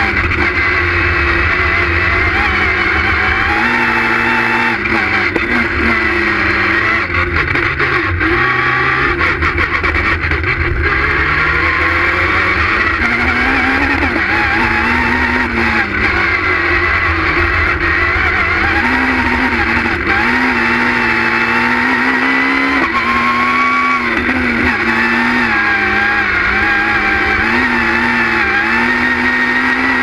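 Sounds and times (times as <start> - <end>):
rally car engine revving: 0.0 - 30.0.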